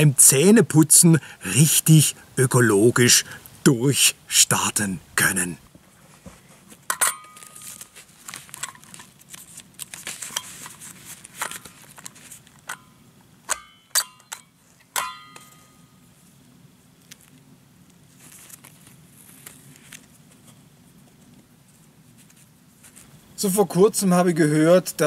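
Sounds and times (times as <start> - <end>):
newspaper rustling and crackling: 6.7 - 12.6, 17.0 - 23.1
sharp ringing clinks: 15.0 - 16.0.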